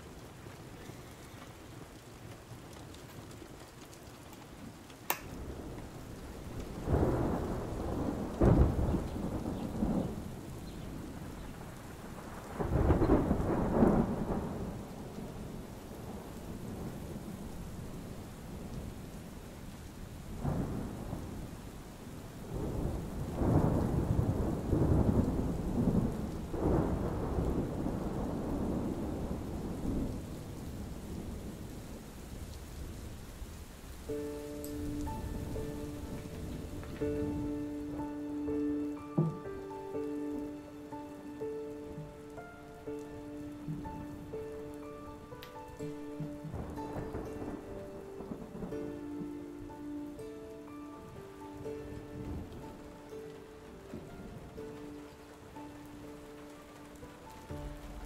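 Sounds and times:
thunder rumbling: 0:00.0 - 0:50.2, 0:51.0 - 0:58.0
steady rain: 0:00.0 - 0:58.0
sharp click: 0:05.1 - 0:05.3.

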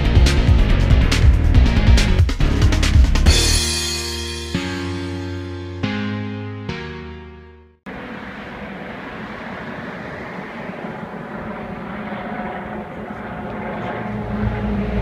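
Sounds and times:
helicopter engine and rotor: 0:07.9 - 0:15.0.

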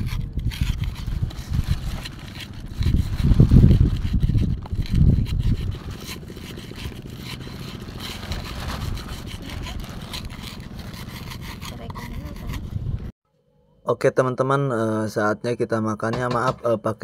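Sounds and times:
pestle grinding in wooden mortar: 0:00.0 - 0:13.1
wind buffeting microphone: 0:00.0 - 0:13.1.

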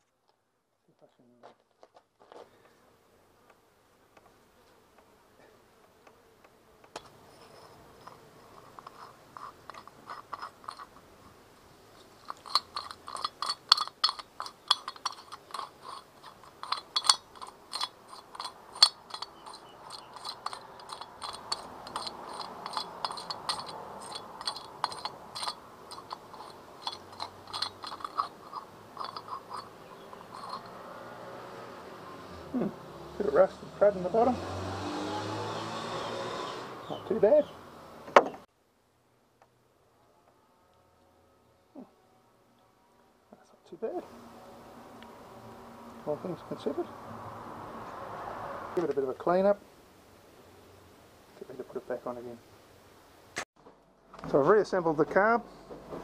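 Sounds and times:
metal crunching and clicking: 0:12.2 - 0:30.8.

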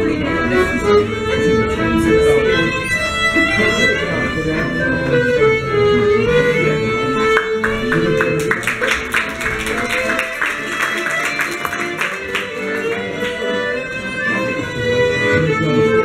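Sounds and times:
accordion playing a tune: 0:00.0 - 0:16.0
sharp rhythmic taps: 0:07.3 - 0:13.4.

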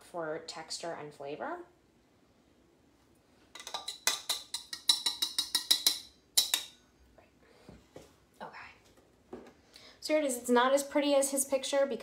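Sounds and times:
glass cup tapping: 0:03.6 - 0:06.7.

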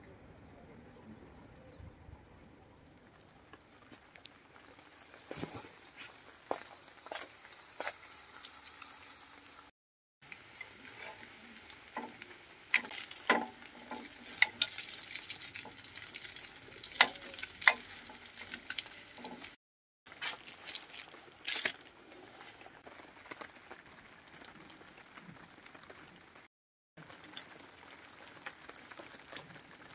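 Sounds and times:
rain on plastic tarp: 0:03.5 - 0:29.9
cutlets sizzling in oil: 0:03.8 - 0:24.9
fork scraping frying pan: 0:10.6 - 0:19.6.

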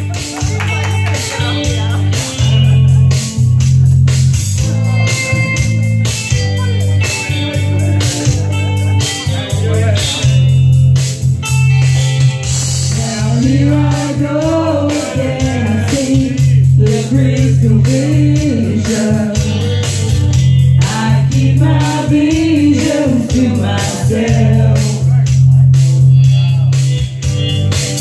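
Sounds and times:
backing track with heavy bass: 0:00.0 - 0:28.0
women singing karaoke: 0:12.8 - 0:25.5.

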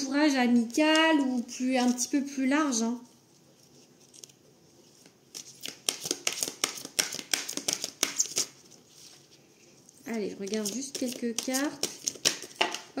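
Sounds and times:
cards being shuffled: 0:03.3 - 0:13.0.

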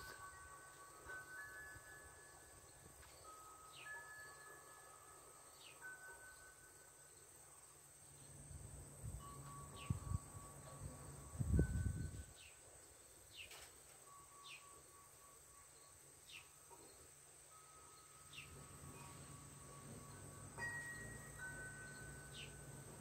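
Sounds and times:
high insect drone: 0:00.0 - 0:13.3
wind chimes ringing: 0:00.0 - 0:23.0.

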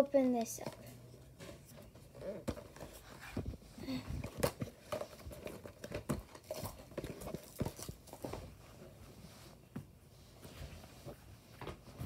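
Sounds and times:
cardboard boxes knocking and rustling: 0:01.4 - 0:09.0.

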